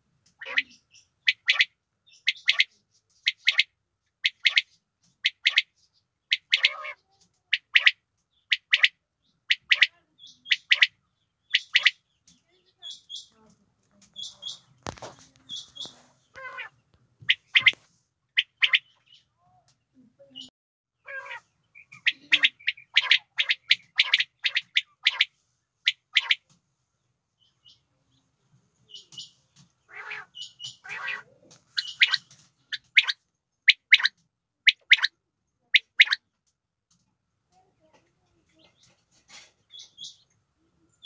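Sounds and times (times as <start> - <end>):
quail calling: 0.4 - 12.1, 14.1 - 19.3, 20.4 - 26.5, 28.9 - 36.3.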